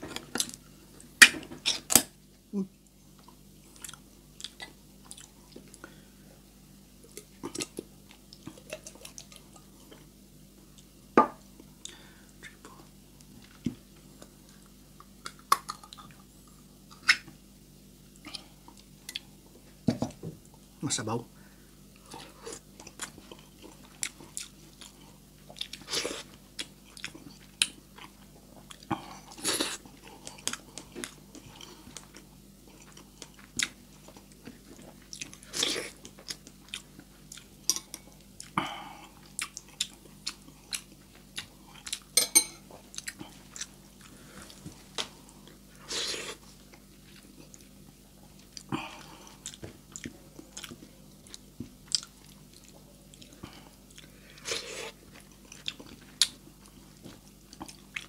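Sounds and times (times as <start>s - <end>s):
faint low hum: 0.0s - 58.0s
wet chewing and mouth smacks: 22.1s - 38.6s, 39.2s - 42.2s, 42.8s - 45.6s, 46.4s - 58.0s.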